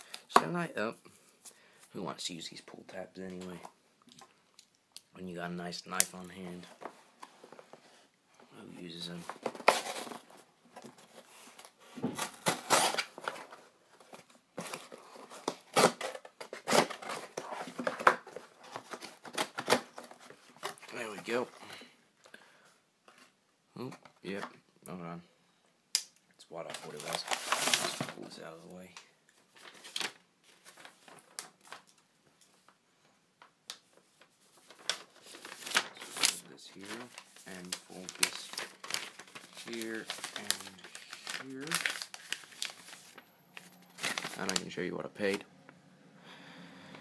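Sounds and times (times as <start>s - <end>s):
packaging clicks and rustles: 9.2s - 21.4s, 34.6s - 45.4s.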